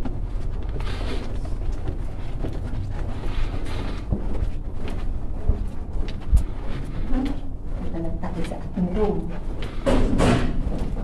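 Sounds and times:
footsteps on carpet: 0.0 - 11.0
handheld camera rumble: 0.0 - 11.0.

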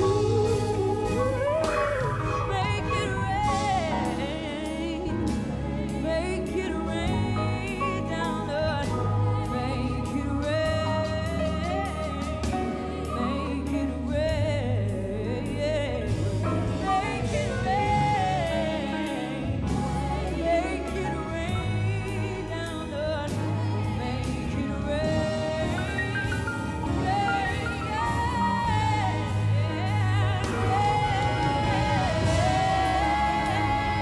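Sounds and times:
electric guitar: 0.0 - 8.4
symphony orchestra: 0.0 - 34.0
woman singing: 0.0 - 34.0.

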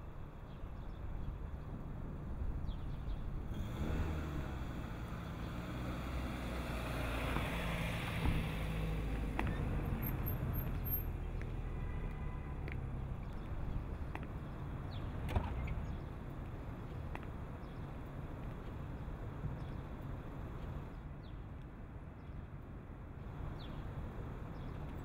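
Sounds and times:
car driving past: 3.6 - 10.8.

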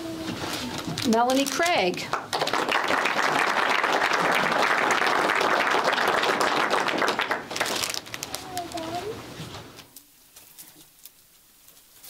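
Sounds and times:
audience applauding: 2.1 - 8.1.

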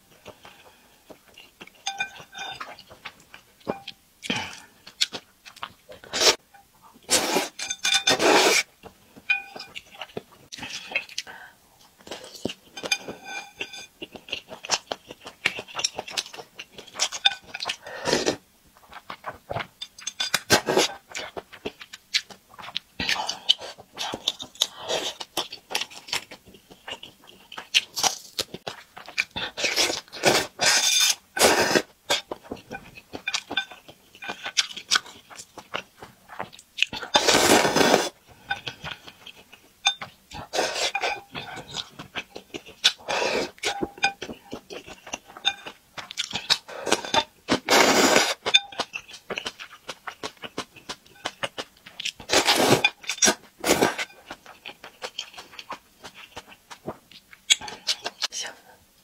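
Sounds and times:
slurping noodles: 7.1 - 8.7, 29.6 - 31.9, 37.1 - 38.2, 43.0 - 43.6, 46.8 - 48.4, 52.3 - 52.9
wet chewing: 9.3 - 58.4.

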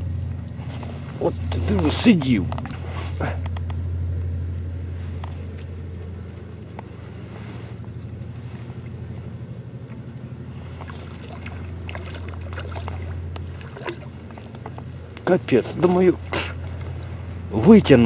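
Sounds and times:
steady low hum: 0.0 - 18.0
fish splashing in water: 9.9 - 17.3.

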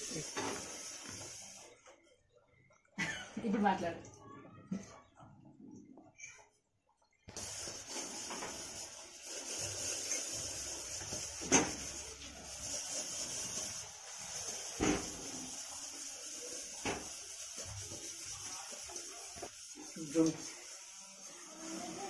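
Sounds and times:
steady hiss: 7.3 - 22.0.

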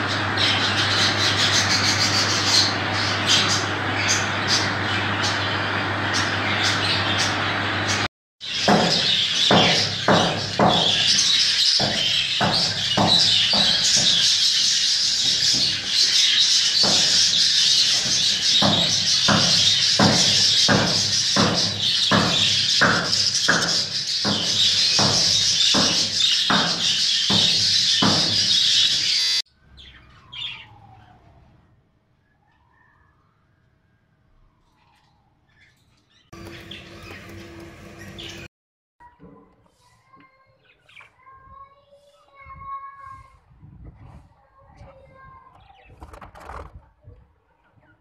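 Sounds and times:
budgerigars chattering: 0.1 - 30.7, 36.4 - 38.5.

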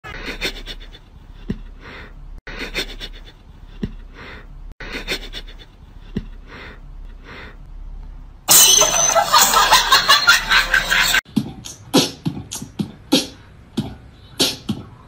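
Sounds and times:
loud beat music: 9.6 - 14.9.

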